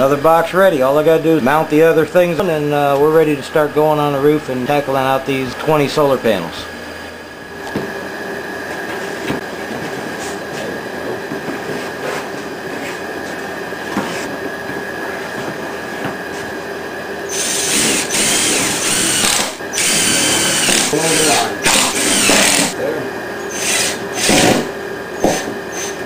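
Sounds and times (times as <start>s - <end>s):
steady hum: 0.0s - 26.0s
power drill whining: 17.3s - 22.8s, 23.5s - 26.0s.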